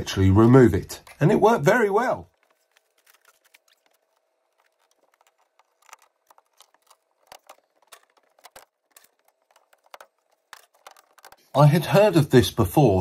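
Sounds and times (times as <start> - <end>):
clicks and knocks of debris: 2.2 - 11.5.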